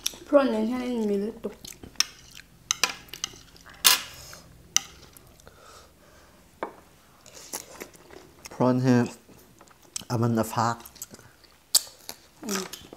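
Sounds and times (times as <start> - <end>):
cutlery clinking and scraping a plate: 2.0 - 4.2.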